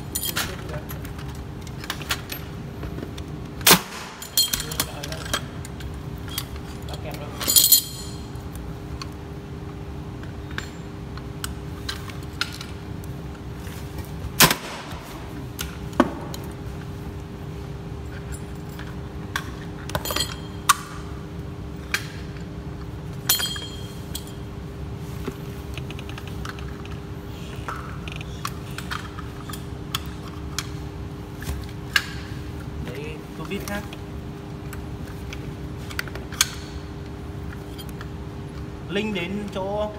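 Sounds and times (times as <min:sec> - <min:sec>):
steady low hum: 0:00.0 - 0:39.9
sharp clicks and clinks: 0:23.2 - 0:24.4.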